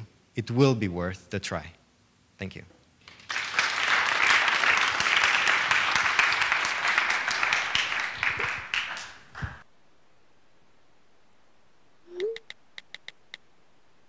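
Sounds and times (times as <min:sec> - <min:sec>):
audience applauding: 0:03.0 - 0:09.7.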